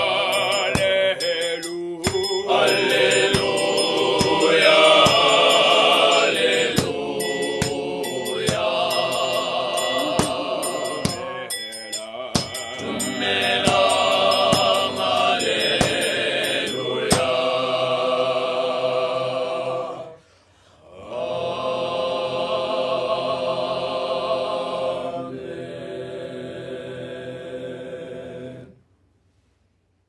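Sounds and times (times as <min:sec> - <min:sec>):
male choir singing held chords: 0:00.0 - 0:20.2, 0:20.8 - 0:28.8.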